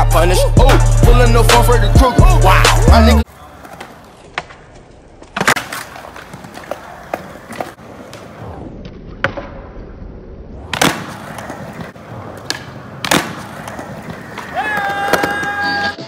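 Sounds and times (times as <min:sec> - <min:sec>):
skateboard wheels rolling on concrete: 0:01.2 - 0:16.0
skateboard clacking on concrete: 0:03.3 - 0:08.3, 0:10.8 - 0:15.8.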